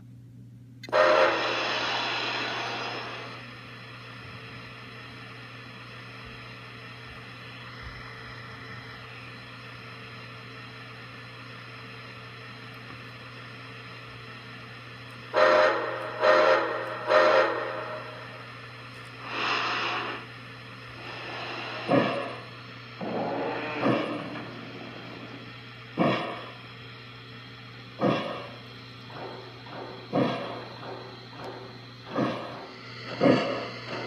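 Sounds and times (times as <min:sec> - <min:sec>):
steady low hum: 0:00.0 - 0:34.0
steam whistle blasts: 0:00.9 - 0:03.3, 0:15.3 - 0:18.4
hissing steam: 0:00.9 - 0:03.4, 0:19.2 - 0:26.5, 0:29.1 - 0:34.0.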